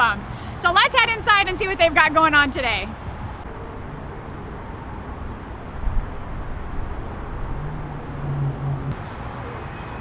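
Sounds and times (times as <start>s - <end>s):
road traffic: 0.0s - 10.0s
vehicle engine low hum: 2.9s - 10.0s.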